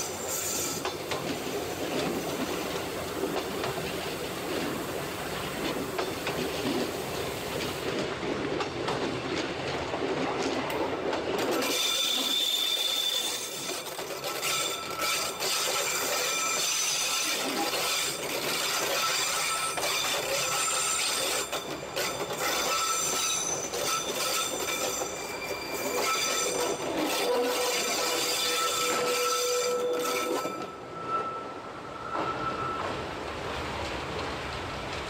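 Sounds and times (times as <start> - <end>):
high wheel squeals: 0.0 - 1.0, 11.6 - 33.2
train rumbling and rattling: 0.0 - 35.0.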